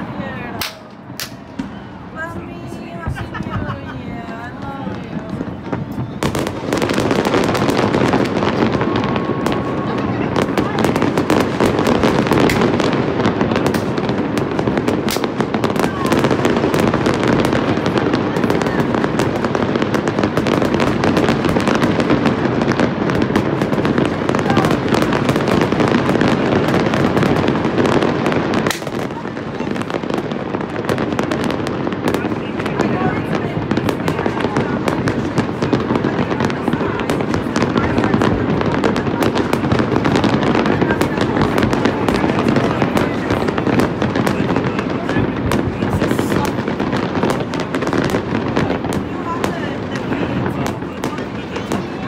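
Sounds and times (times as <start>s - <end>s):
fireworks cracks and bangs: 0.0s - 52.0s.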